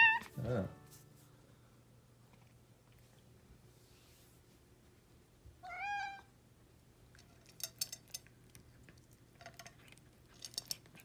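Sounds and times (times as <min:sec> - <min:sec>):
kitten meowing: 0:05.6 - 0:06.3
kitten eating from bowl: 0:06.8 - 0:11.0.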